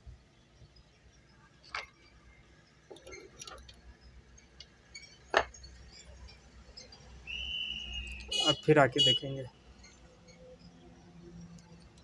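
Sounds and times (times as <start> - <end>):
sewing machine parts clinking: 2.9 - 3.8.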